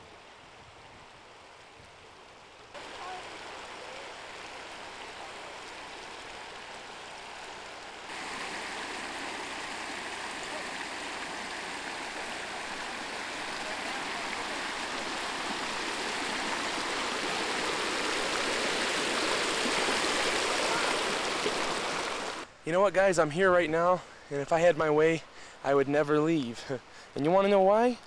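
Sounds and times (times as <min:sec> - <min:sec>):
creek rushing over cobbles: 0:01.1 - 0:22.5.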